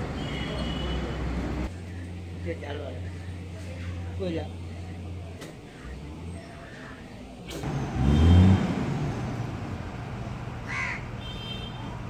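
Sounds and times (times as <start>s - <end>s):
truck engine revving: 7.5s - 10.6s
crow cawing: 10.6s - 11.1s.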